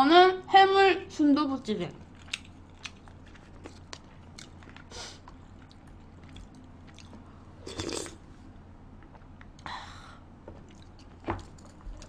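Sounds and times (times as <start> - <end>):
low steady hum: 0.0 - 12.0
faint chewing: 2.0 - 8.2, 10.5 - 12.0.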